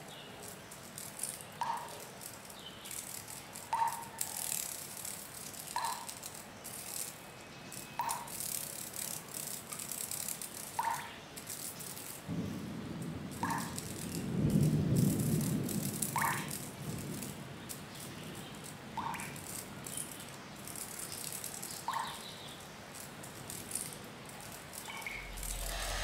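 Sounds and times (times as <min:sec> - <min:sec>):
rattling shaking bursts: 0:23.2 - 0:26.0
low rumble: 0:25.2 - 0:26.0.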